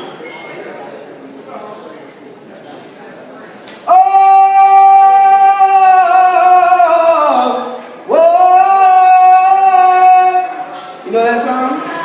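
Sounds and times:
man singing unaccompanied: 3.9 - 11.8.

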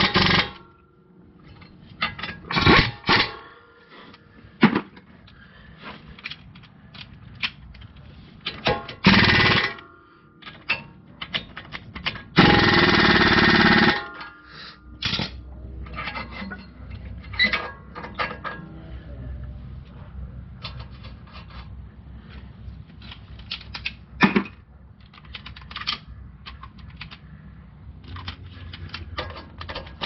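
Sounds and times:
tools and parts clattering: 1.4 - 12.6, 13.8 - 18.8, 20.6 - 21.8, 22.9 - 27.3, 28.0 - 30.0
impact wrench hammering: 8.6 - 9.9, 12.3 - 14.4.

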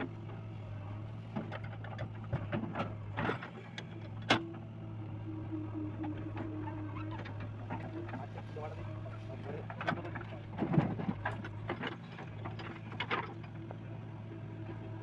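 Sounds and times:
diesel engine running: 0.0 - 15.0
knocks and clatter of digger arm: 9.6 - 13.9.

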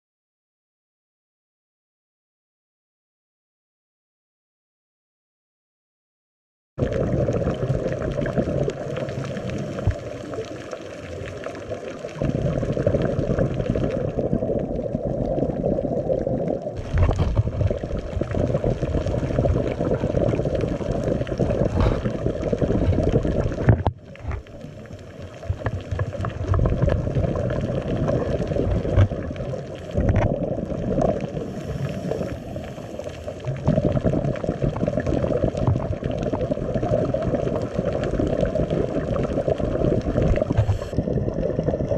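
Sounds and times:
exhaled bubbles gurgling: 6.8 - 41.9
muffled underwater noise: 6.8 - 41.9.

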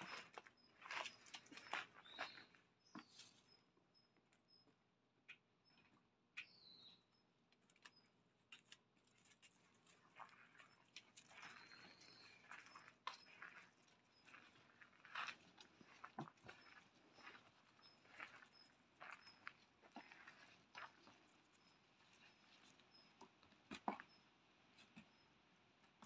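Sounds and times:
clicks and rustles: 7.5 - 12.2.

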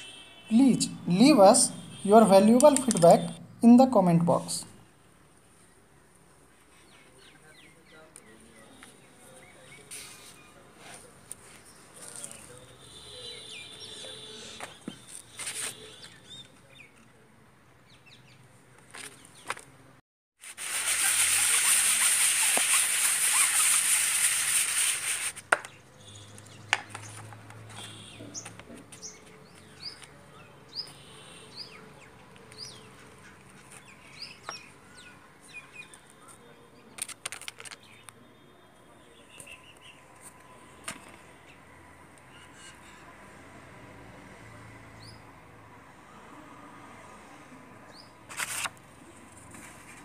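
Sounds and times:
loud even hiss: 20.4 - 25.4.

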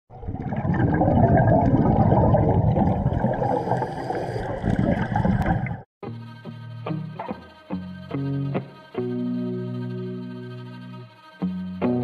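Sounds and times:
water bubbling: 0.1 - 5.9.

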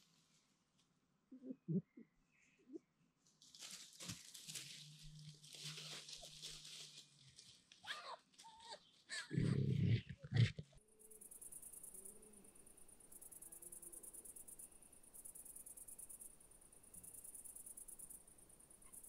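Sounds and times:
rustling in dry leaves: 3.4 - 9.2.

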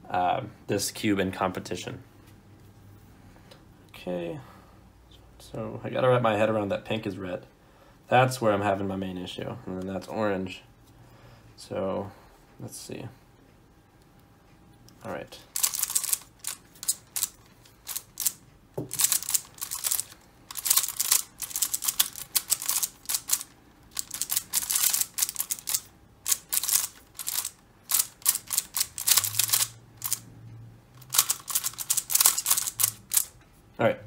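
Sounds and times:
puzzle cube layers clicking: 15.6 - 30.2, 31.0 - 33.3.

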